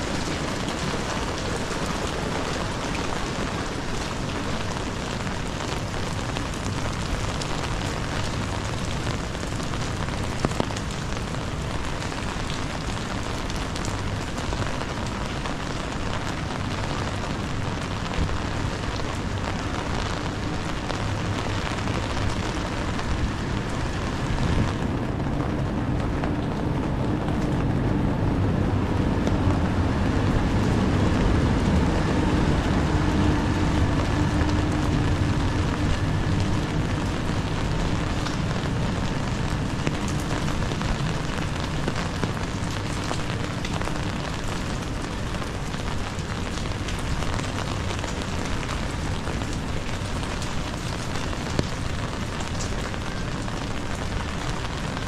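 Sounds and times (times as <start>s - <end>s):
rain on a wet street: 0.0s - 55.0s
low steady hum: 19.4s - 44.2s.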